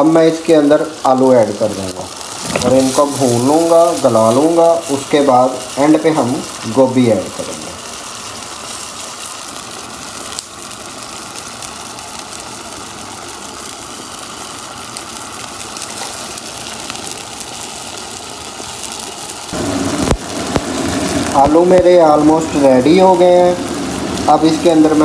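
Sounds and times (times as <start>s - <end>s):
potatoes sizzling in a pan: 0.0s - 25.0s.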